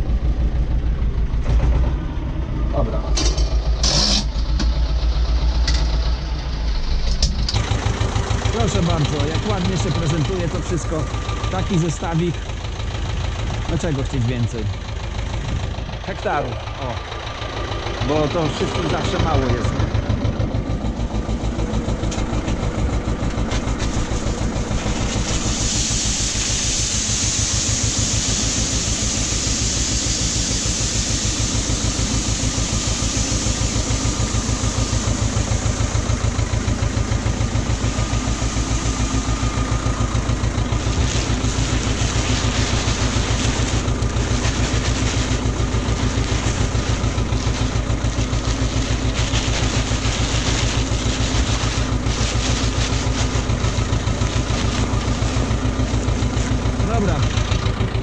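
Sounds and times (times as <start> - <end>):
tractor diesel engine running: 0.0 - 58.0
steady hiss: 24.9 - 36.0.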